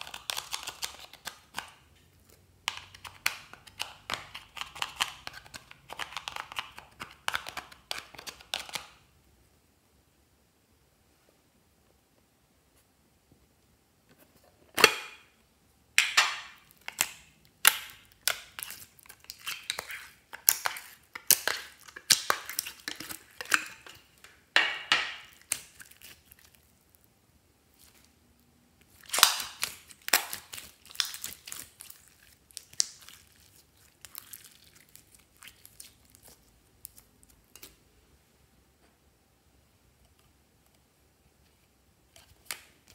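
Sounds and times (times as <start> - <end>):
slime crackling and popping: 16.0 - 27.0, 28.8 - 37.8.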